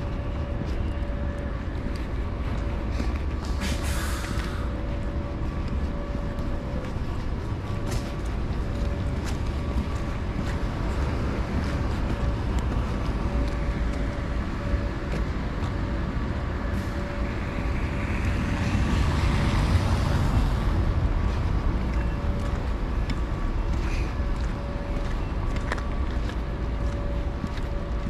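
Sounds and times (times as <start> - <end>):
low traffic rumble: 0.0 - 28.0
tyres hissing on slushy road: 3.0 - 4.8.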